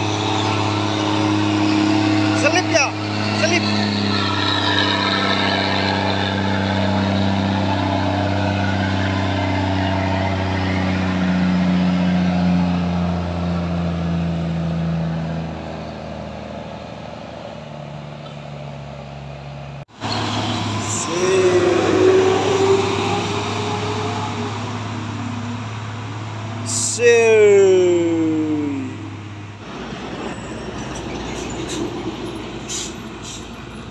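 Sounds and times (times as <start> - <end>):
heavy vehicle engine: 0.0 - 33.9
truck diesel engine passing: 0.0 - 33.9.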